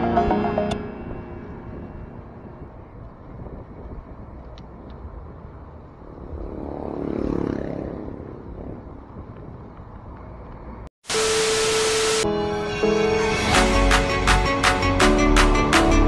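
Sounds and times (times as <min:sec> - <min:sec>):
low wind and road rumble: 0:00.0 - 0:10.9
motor vehicle passing: 0:04.7 - 0:10.9.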